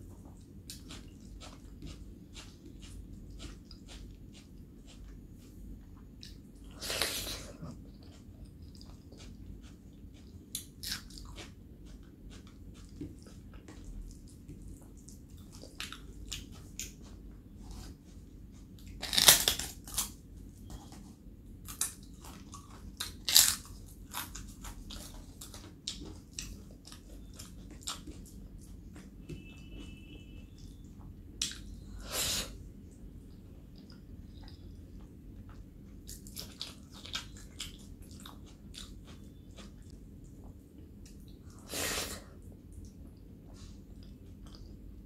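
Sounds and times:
chewing with wet mouth clicks: 0:00.4 - 0:06.4, 0:07.6 - 0:17.8, 0:21.7 - 0:29.9, 0:30.6 - 0:31.8, 0:33.2 - 0:41.6, 0:44.0 - 0:44.8
loud crunchy bites: 0:19.0 - 0:20.1.

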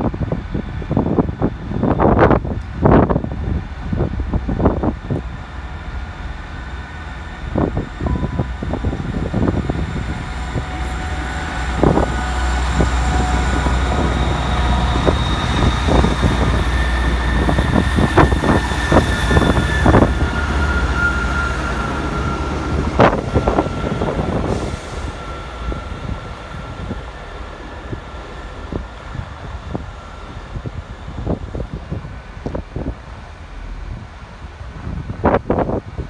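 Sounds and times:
diesel train drone: 0:00.0 - 0:36.0
high wheel squeal: 0:10.6 - 0:26.7.

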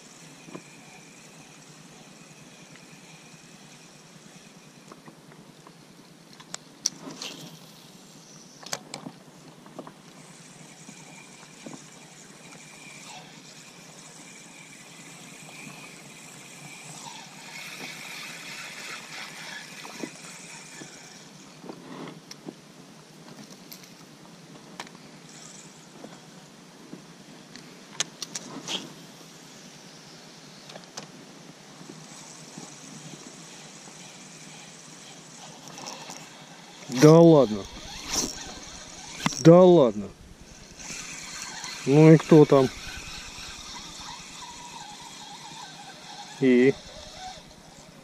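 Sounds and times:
fishing reel whirring: 0:00.0 - 0:05.0, 0:10.1 - 0:21.6, 0:25.2 - 0:26.4, 0:31.8 - 0:48.0.

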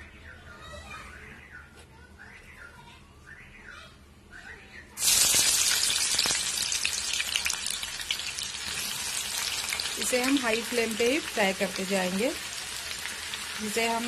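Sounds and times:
onions frying in hot oil: 0:05.0 - 0:14.0.

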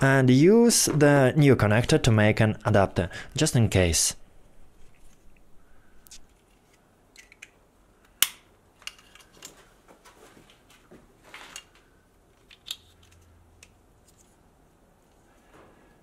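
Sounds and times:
wires rustling: 0:04.4 - 0:16.0
plastic connectors clicking: 0:06.0 - 0:09.5, 0:12.3 - 0:13.8.

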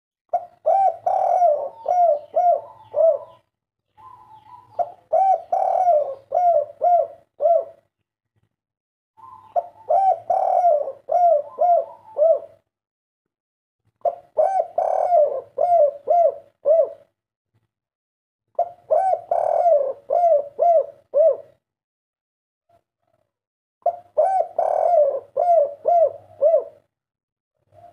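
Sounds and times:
dove cooing: 0:00.3 - 0:07.9, 0:09.2 - 0:12.6, 0:14.0 - 0:17.1, 0:18.6 - 0:21.6, 0:23.0 - 0:26.9, 0:27.6 - 0:27.9.

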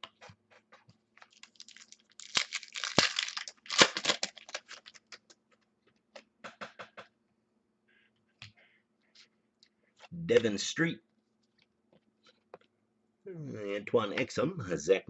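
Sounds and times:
foil pack tearing and crinkling: 0:01.2 - 0:05.2.

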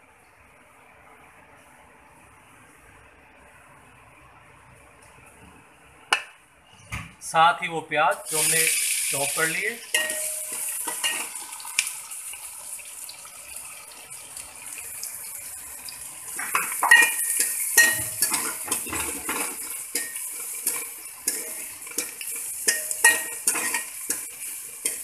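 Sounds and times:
onions sizzling in oil: 0:08.2 - 0:25.0
metal ladle scraping pan: 0:09.9 - 0:11.4, 0:16.4 - 0:25.0.

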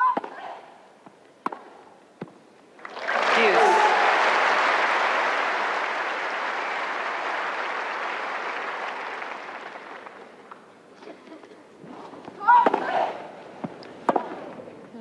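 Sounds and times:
crowd applauding: 0:02.8 - 0:10.6.

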